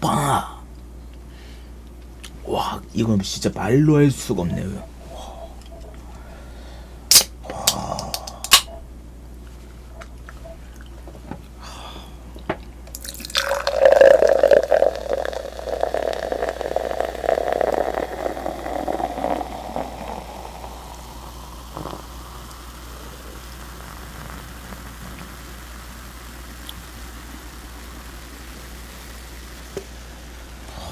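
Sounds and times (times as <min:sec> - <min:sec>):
fizzy drink pouring and foaming: 0:12.9 - 0:30.9.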